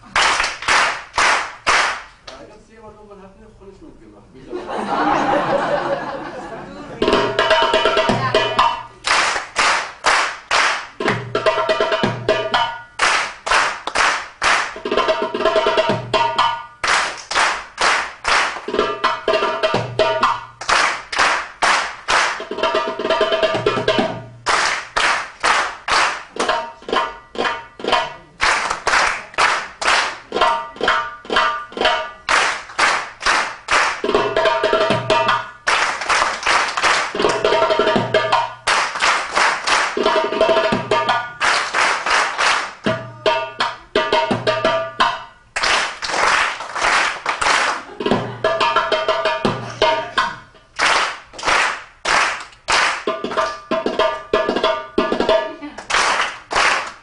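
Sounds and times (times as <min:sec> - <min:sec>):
goblet drum drumming: 0:07.0 - 0:08.9, 0:10.9 - 0:13.0, 0:14.7 - 0:16.8, 0:18.6 - 0:21.1, 0:22.0 - 0:24.5, 0:25.6 - 0:28.4, 0:30.0 - 0:32.7, 0:33.9 - 0:35.8, 0:36.6 - 0:38.7, 0:39.8 - 0:41.6, 0:42.7 - 0:45.6, 0:47.8 - 0:50.8, 0:53.0 - 0:55.6.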